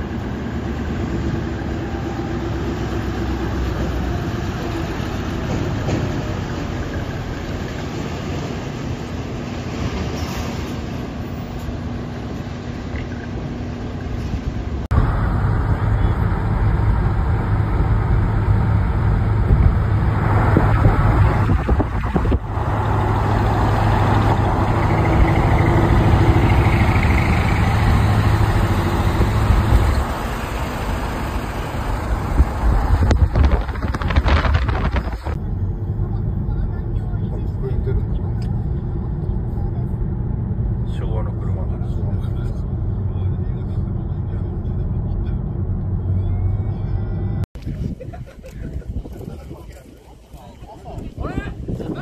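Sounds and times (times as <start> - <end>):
heavy truck engines running: 0.0 - 52.0
road noise: 0.0 - 52.0
low engine drone inside vehicle: 12.7 - 27.8, 30.3 - 47.5.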